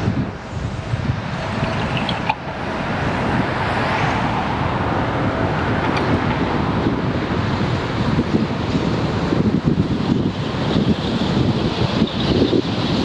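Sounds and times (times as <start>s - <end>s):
road traffic noise: 0.0s - 13.0s
wind buffeting microphone: 0.0s - 13.0s
vehicle passing: 0.1s - 9.0s.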